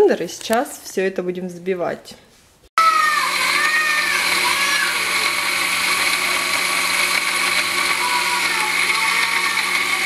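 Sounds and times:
blender running at high speed: 2.8s - 10.0s.

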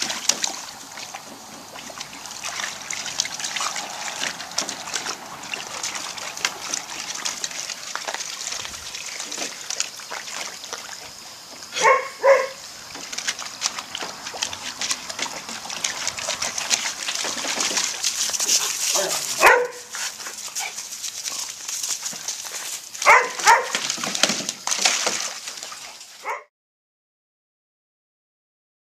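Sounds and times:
garden hose running: 0.0s - 26.4s
water splashing and sloshing: 0.0s - 26.5s
puppies barking: 11.7s - 12.7s, 18.4s - 20.8s, 23.0s - 23.8s, 26.2s - 26.5s.

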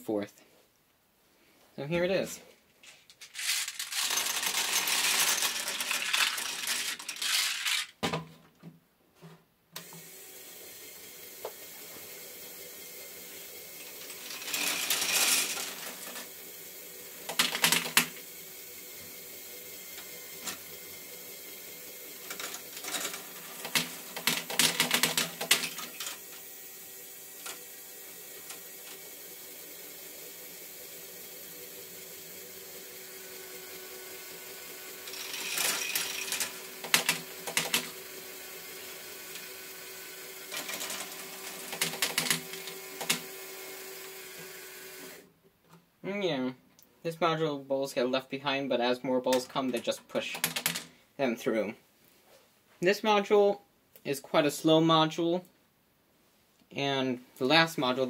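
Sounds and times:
plastic balls rolling and clattering: 2.8s - 8.6s, 13.8s - 16.4s, 17.2s - 18.2s, 22.1s - 26.5s, 35.0s - 38.0s, 40.4s - 43.4s, 49.3s - 50.9s
handling noise: 2.8s - 9.4s
small motor humming: 9.8s - 24.2s, 25.4s - 45.3s.

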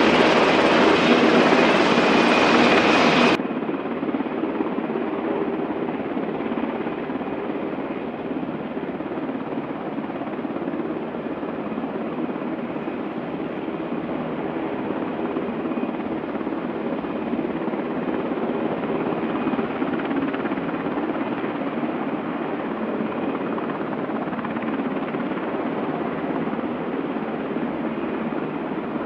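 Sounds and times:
dull helicopter rotor noise: 0.0s - 29.0s
helicopter rotor and turbine noise: 0.0s - 29.0s.

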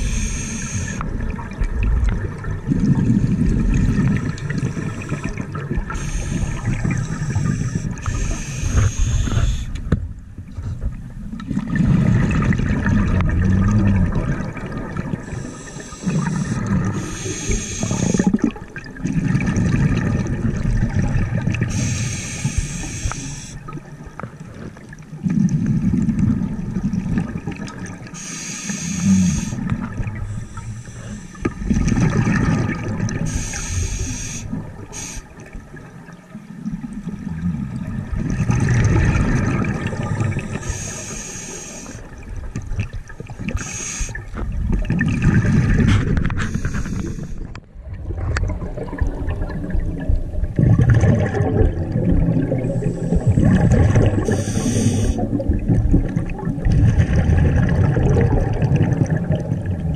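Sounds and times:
regulator inhalation hiss: 0.0s - 1.0s, 4.7s - 9.8s, 15.3s - 18.4s, 21.7s - 23.6s, 28.2s - 29.6s, 30.3s - 31.5s, 33.3s - 35.4s, 40.4s - 42.1s, 43.6s - 44.2s, 46.4s - 47.5s, 54.2s - 55.2s
bubbling exhaled air: 0.0s - 9.9s, 11.4s - 23.9s, 25.2s - 35.6s, 36.6s - 59.9s.

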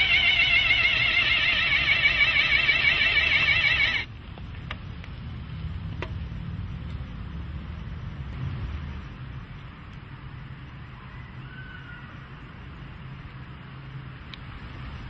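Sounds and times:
warbling motor whir: 0.0s - 4.1s
low hum: 0.0s - 4.2s.

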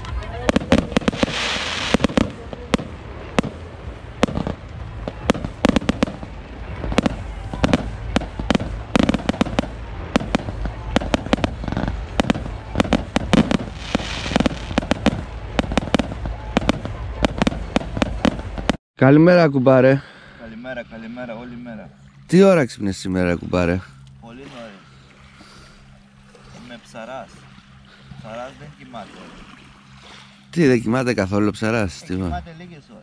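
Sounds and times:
fireworks bangs: 0.0s - 18.8s.

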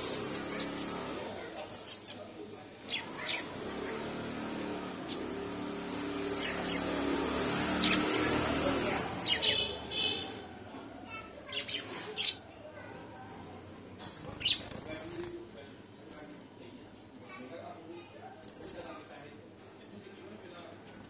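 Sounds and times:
budgies and finches chirping: 0.0s - 10.5s, 11.1s - 13.0s, 14.0s - 15.4s.

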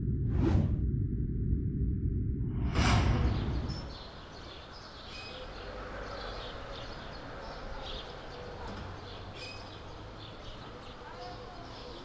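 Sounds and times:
steady low hum: 0.0s - 4.4s
small birds chirping: 3.3s - 12.0s.

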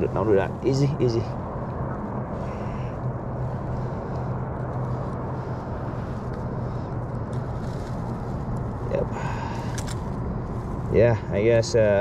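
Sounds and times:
background rumble: 0.0s - 12.0s
low mechanical hum: 0.0s - 12.0s.

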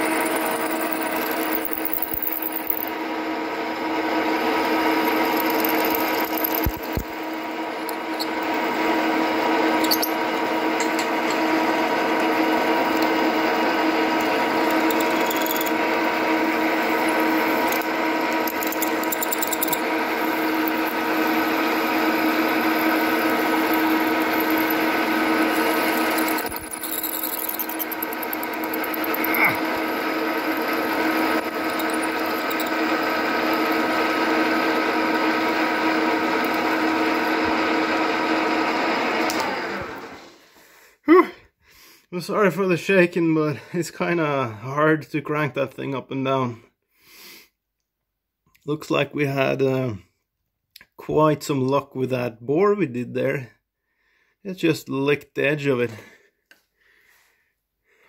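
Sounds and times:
milling machine hum: 0.0s - 40.2s.

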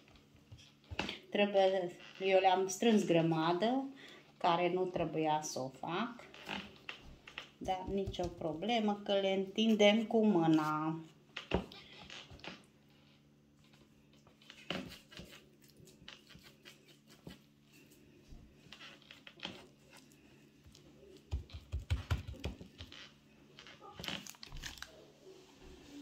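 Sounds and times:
low thumps on dough: 7.6s - 8.7s
baking paper crinkling: 23.6s - 26.0s.

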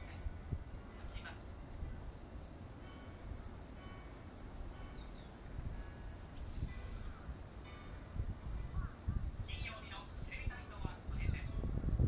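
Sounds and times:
insects droning: 0.0s - 12.0s
wind rumble on microphone: 0.0s - 12.0s
bird chirps: 2.1s - 9.9s.

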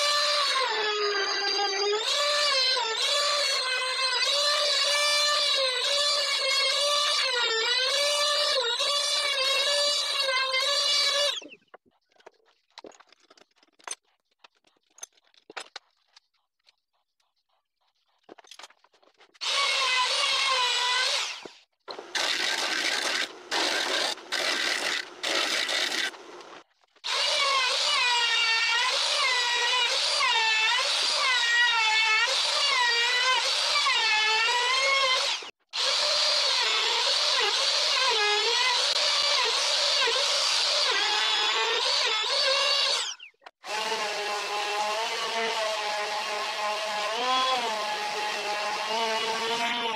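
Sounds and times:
router whining cutting wood: 19.4s - 22.5s, 23.1s - 49.9s.

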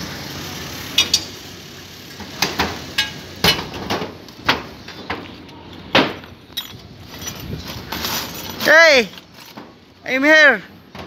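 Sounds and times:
metal tools knocking and clanking: 6.0s - 8.7s.

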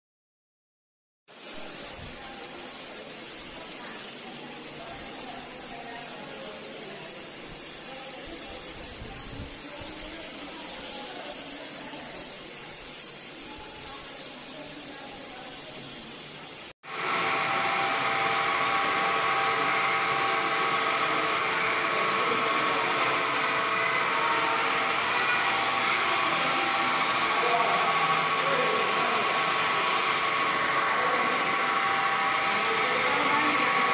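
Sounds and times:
spinning machine whirring: 16.9s - 33.9s.

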